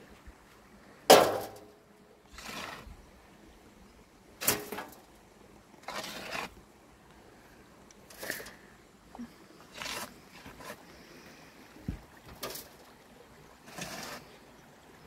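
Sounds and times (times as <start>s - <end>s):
spade clanking: 1.1s - 1.7s, 4.4s - 5.1s, 12.3s - 12.8s
spade scraping and digging soil: 2.3s - 2.9s, 4.4s - 5.1s, 5.8s - 6.6s, 8.0s - 8.6s, 9.7s - 10.8s, 12.3s - 12.8s, 13.6s - 14.4s.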